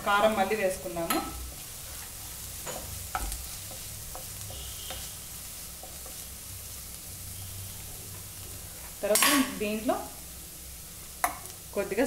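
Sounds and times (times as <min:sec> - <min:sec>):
vegetables sizzling in oil: 0:00.0 - 0:12.0
spatula stirring in pan: 0:00.1 - 0:09.2.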